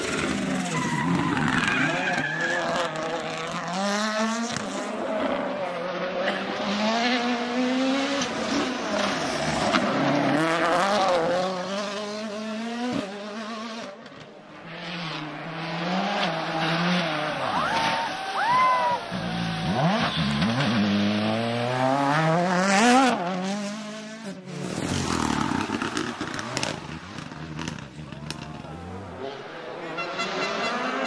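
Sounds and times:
rally car engines revving: 0.0s - 31.0s.

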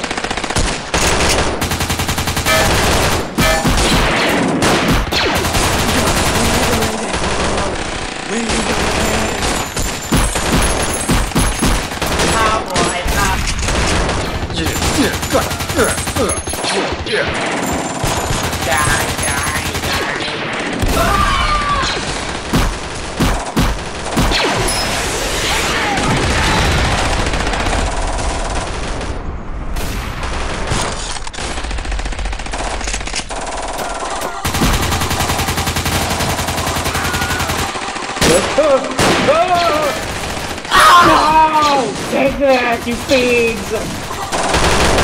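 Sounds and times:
blaster fire: 0.0s - 33.1s, 33.8s - 45.0s
gunfire: 0.0s - 45.0s.

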